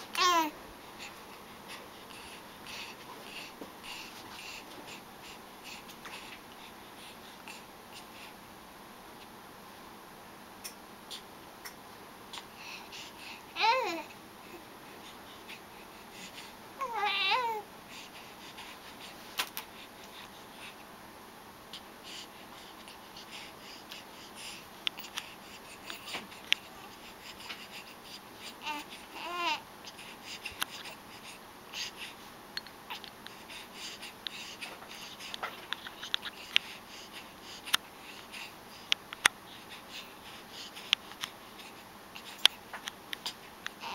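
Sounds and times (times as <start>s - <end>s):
baby babbling: 0.1s - 0.6s, 13.6s - 14.1s, 16.8s - 17.7s, 28.6s - 29.6s
small clicks and rustles: 24.8s - 26.7s, 34.2s - 36.8s, 40.8s - 43.9s.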